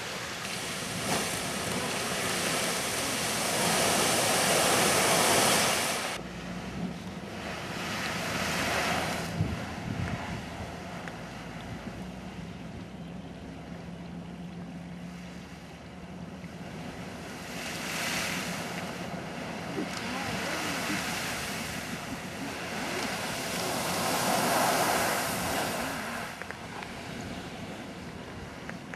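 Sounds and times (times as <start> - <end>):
geyser erupting water and steam: 0.0 - 6.2, 7.2 - 11.0, 16.6 - 28.9.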